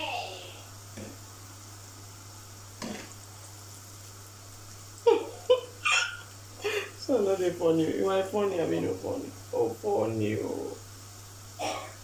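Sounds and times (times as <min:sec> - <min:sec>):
dough sizzling in oil: 0:00.0 - 0:12.0
woman laughing: 0:05.1 - 0:07.0.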